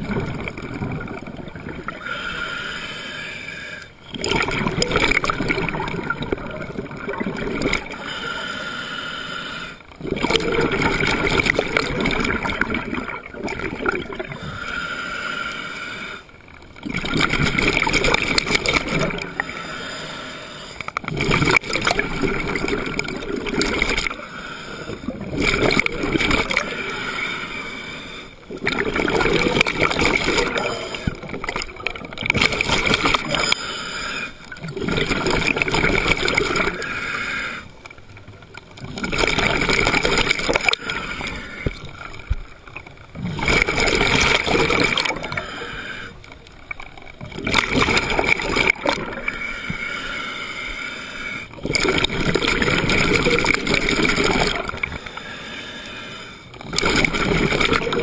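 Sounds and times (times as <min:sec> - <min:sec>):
exhaled bubbles gurgling: 0:00.0 - 0:08.6, 0:09.5 - 0:58.0
diver breathing through regulator: 0:01.9 - 0:04.0, 0:07.8 - 0:09.9, 0:14.3 - 0:16.4, 0:17.3 - 0:28.5, 0:29.6 - 0:31.6, 0:32.4 - 0:37.8, 0:39.6 - 0:42.0, 0:43.3 - 0:46.4, 0:47.5 - 0:57.9.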